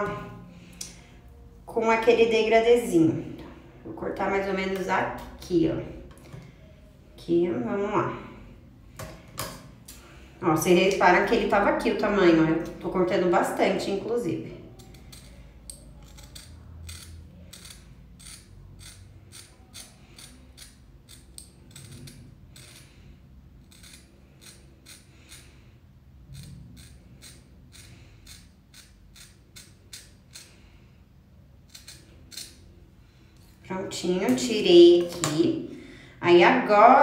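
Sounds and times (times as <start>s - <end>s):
scissors snipping hair: 14.8s - 22.8s, 23.6s - 25.4s, 26.4s - 30.5s, 31.7s - 32.6s.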